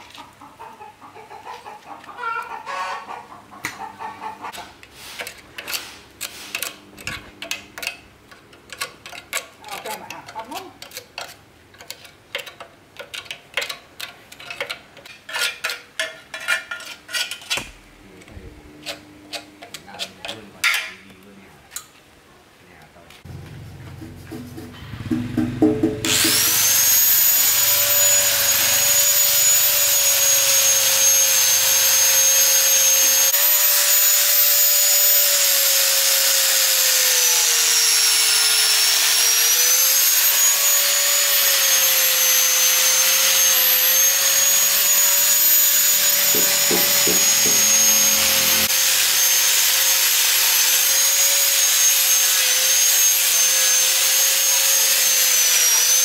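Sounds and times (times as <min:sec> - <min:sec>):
angle grinder grinding metal: 0:18.5 - 0:21.0, 0:23.2 - 0:56.0.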